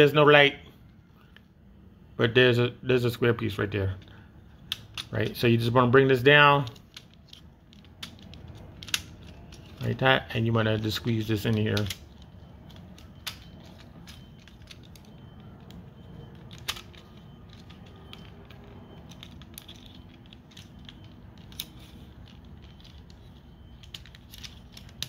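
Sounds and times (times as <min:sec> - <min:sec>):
plastic parts clicking and rattling: 0:03.9 - 0:05.7, 0:06.4 - 0:25.0.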